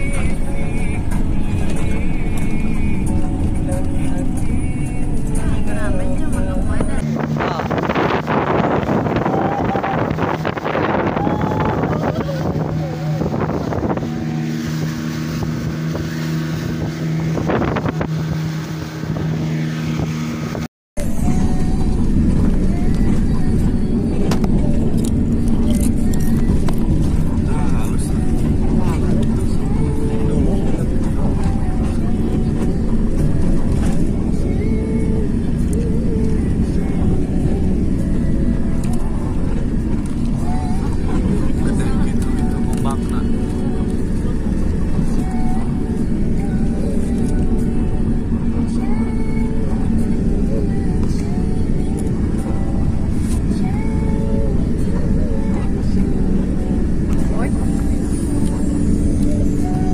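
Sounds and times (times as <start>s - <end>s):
boat motor running: 0.0s - 59.9s
car driving low rumble: 0.0s - 59.9s
road vehicle noise: 0.0s - 59.9s
water splashing along hull: 0.0s - 59.9s
wind on microphone: 6.8s - 59.9s
voices shouting: 9.0s - 13.2s.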